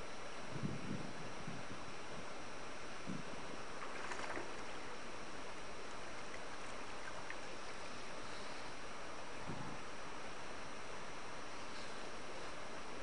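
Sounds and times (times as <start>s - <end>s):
stream water flowing: 3.5s - 11.4s
water splash: 3.8s - 4.8s.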